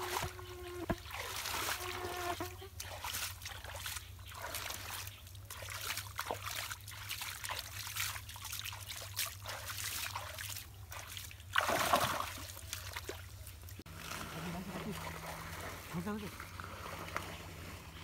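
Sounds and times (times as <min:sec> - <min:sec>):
water trickling and dripping: 0:02.8 - 0:14.2
hands splashing in muddy water: 0:02.8 - 0:17.4.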